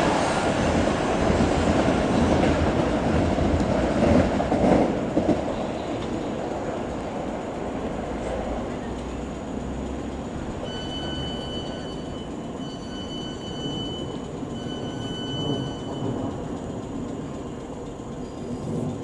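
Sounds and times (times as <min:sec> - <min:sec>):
train rumbling: 0:00.0 - 0:19.0
train wheels squealing: 0:05.4 - 0:07.0, 0:10.4 - 0:19.0.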